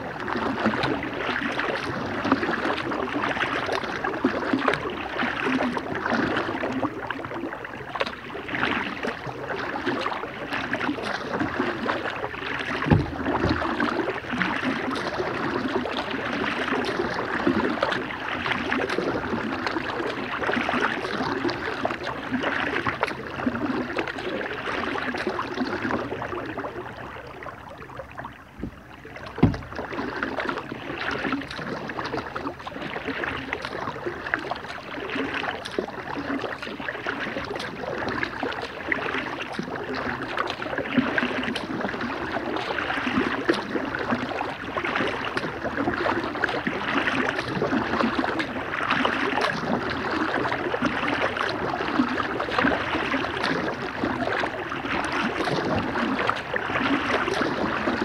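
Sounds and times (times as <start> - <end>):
paddle water splashing: 0.0 - 58.0.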